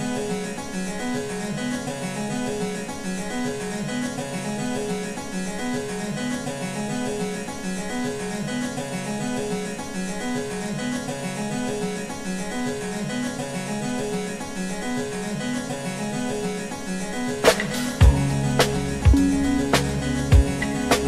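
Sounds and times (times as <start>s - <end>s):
background music with bass: 16.9s - 21.0s.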